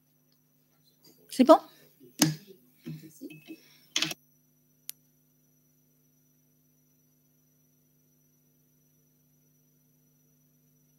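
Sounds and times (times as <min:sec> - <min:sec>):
faint high whine: 0:00.0 - 0:10.9
low electrical hum: 0:00.0 - 0:10.9
sharp click: 0:04.0 - 0:04.2.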